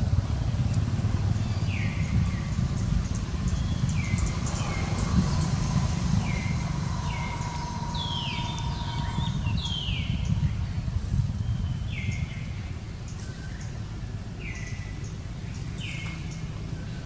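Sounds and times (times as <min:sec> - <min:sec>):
steady low rumble: 0:00.0 - 0:17.0
high falling chirping calls: 0:01.4 - 0:10.6.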